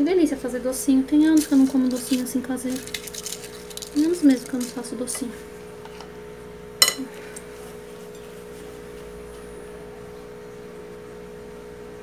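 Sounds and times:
steady hum: 0:00.0 - 0:12.0
metal spoon clinking on plate: 0:06.8 - 0:07.1.

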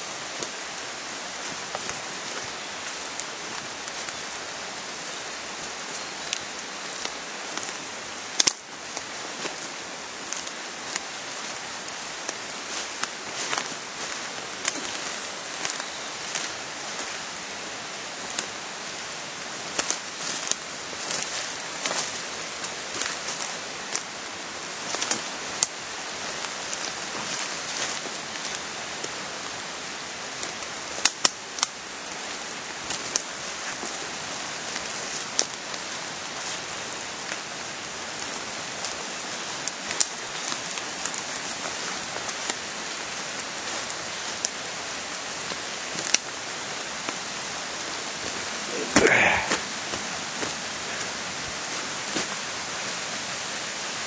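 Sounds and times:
footsteps on leaves and twigs: 0:00.0 - 0:54.0
steady hiss: 0:00.0 - 0:54.0.

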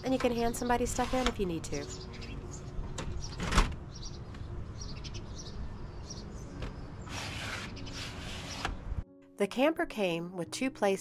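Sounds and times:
birds chirping: 0:00.0 - 0:09.0
screen door clacking: 0:03.0 - 0:03.8.

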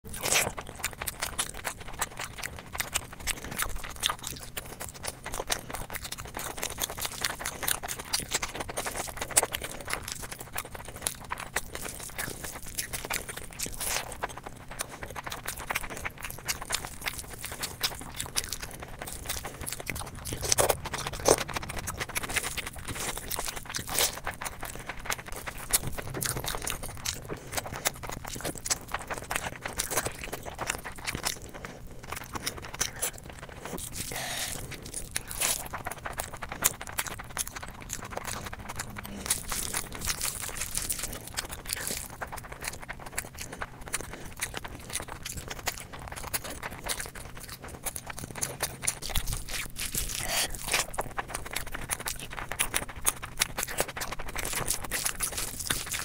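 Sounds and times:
person chewing and smacking: 0:00.0 - 0:56.0.

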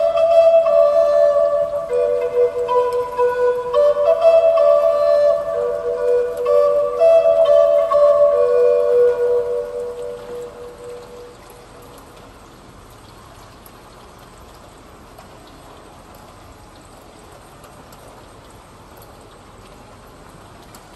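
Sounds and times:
flute held note: 0:00.0 - 0:11.4
rain hissing: 0:00.0 - 0:20.9.

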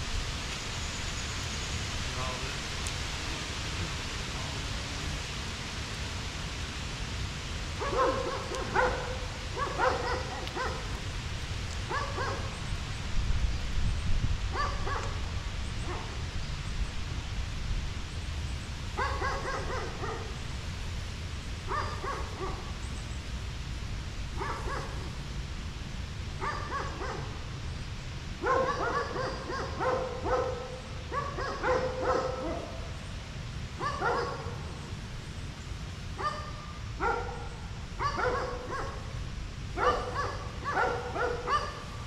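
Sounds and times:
dog barking: 0:07.8 - 0:10.9, 0:11.9 - 0:12.5, 0:14.5 - 0:15.2, 0:15.9 - 0:16.2, 0:19.0 - 0:20.4, 0:21.7 - 0:22.7, 0:24.4 - 0:25.1, 0:26.4 - 0:27.4, 0:28.4 - 0:32.8, 0:33.8 - 0:34.7, 0:36.2 - 0:39.1, 0:39.8 - 0:41.9.

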